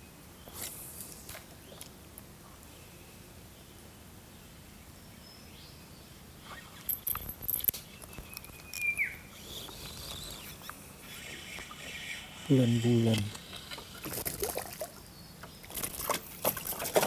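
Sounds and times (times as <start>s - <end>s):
riverside ambience: 6.3s - 16.9s
fishing reel clicking and rattling: 6.9s - 7.7s.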